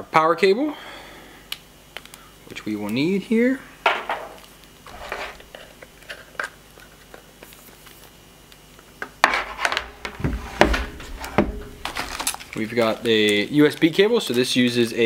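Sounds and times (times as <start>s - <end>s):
cable rustling: 4.3s - 8.2s, 9.3s - 14.5s.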